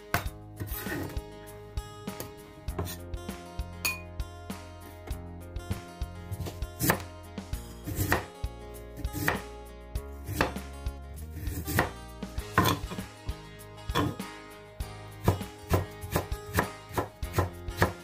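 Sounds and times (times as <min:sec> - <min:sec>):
knife chopping on wooden board: 0:02.2 - 0:03.0, 0:06.3 - 0:07.1, 0:07.9 - 0:08.3, 0:09.1 - 0:09.5, 0:10.2 - 0:10.7, 0:11.4 - 0:13.0, 0:13.9 - 0:14.2, 0:15.2 - 0:18.0.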